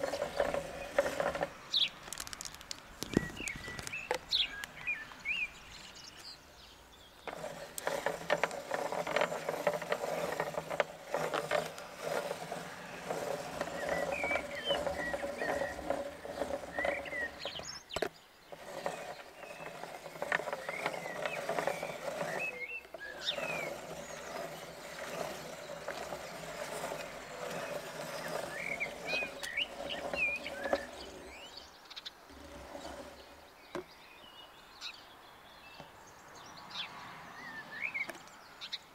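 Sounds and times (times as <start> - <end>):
hand-cranked meat grinder grinding: 0.0 - 5.0, 7.2 - 33.8
birds chirping: 0.0 - 38.9.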